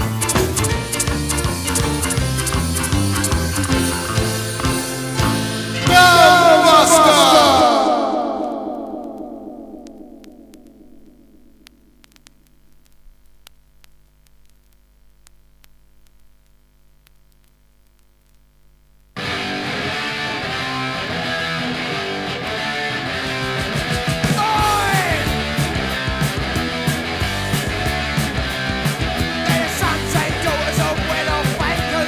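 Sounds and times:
song ending notes: 0.0 - 10.9, 22.9 - 31.8
punk rock music: 0.0 - 11.2, 19.2 - 32.0
vinyl surface noise and crackle: 8.3 - 21.2.

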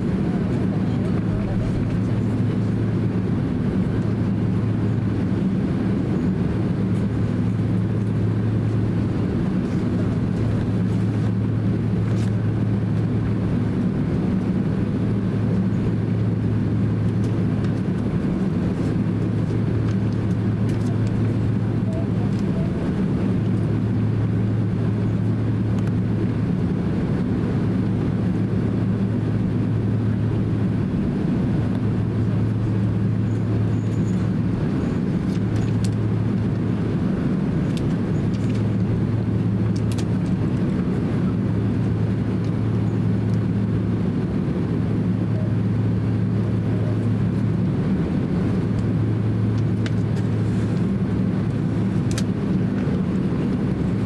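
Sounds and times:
airliner cabin drone: 0.0 - 54.0.

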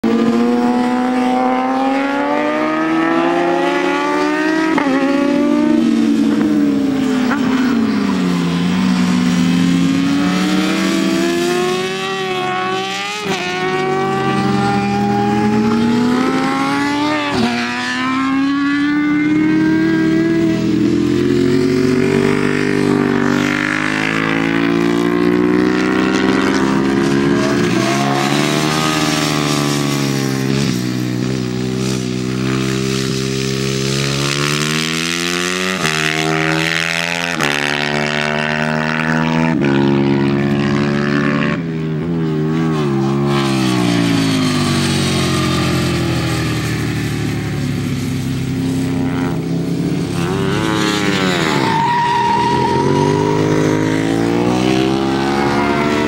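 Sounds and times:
racing motorcycles passing: 0.0 - 56.0.

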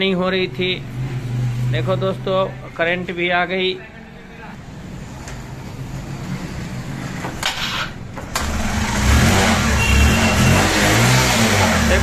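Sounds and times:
motorcycle engine cranking: 7.2 - 12.0.

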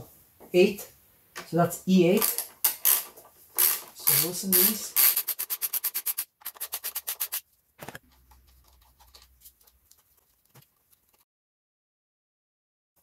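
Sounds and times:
hand ratchet clicking: 2.2 - 7.4.

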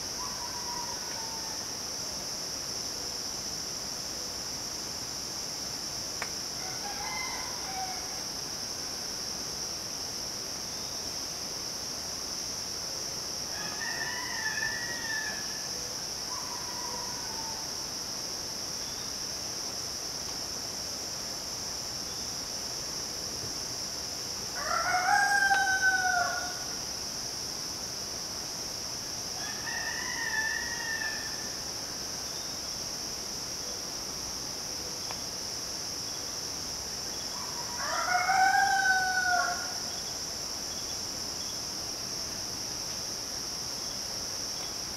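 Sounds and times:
roosters crowing: 13.6 - 15.4, 24.6 - 26.6, 29.4 - 31.3, 37.7 - 39.8.

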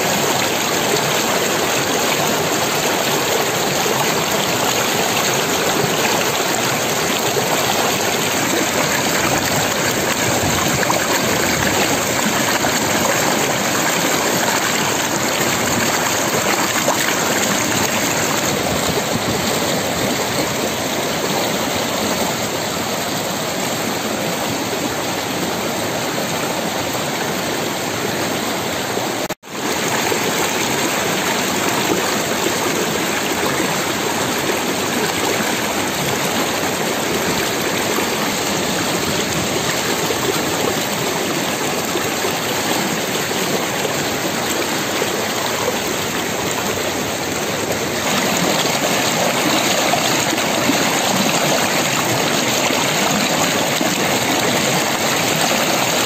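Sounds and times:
stream rushing over stones: 0.0 - 56.0.

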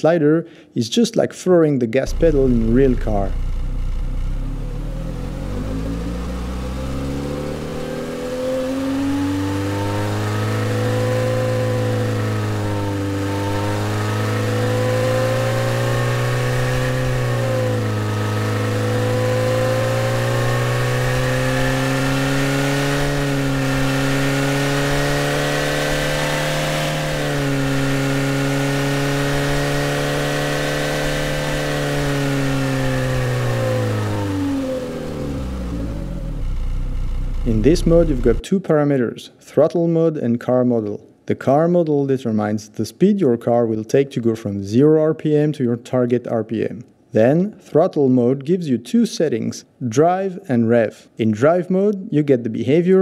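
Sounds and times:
car engine revving: 2.1 - 38.4.

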